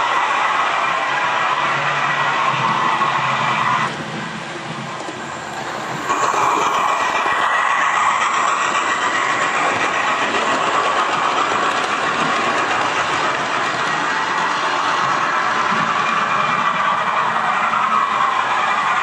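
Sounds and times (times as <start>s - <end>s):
model train steam sound: 0.0s - 19.0s
wheels clicking over rail joints: 4.8s - 19.0s.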